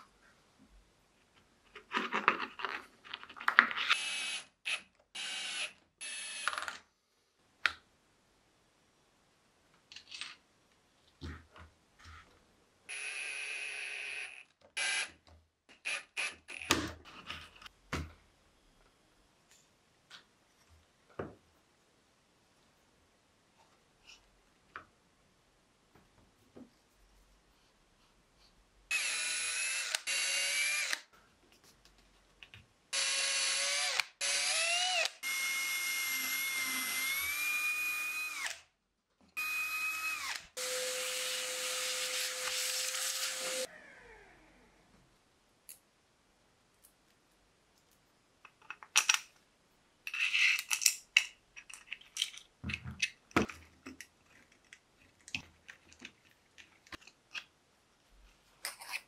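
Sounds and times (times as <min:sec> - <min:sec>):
cordless drill boring plywood: 0:04.0 - 0:06.6, 0:12.9 - 0:15.2, 0:15.8 - 0:16.8, 0:28.9 - 0:31.0, 0:33.0 - 0:38.7, 0:39.4 - 0:44.7
small parts clicking and knocking: 0:47.8 - 0:49.4, 0:50.0 - 0:57.6.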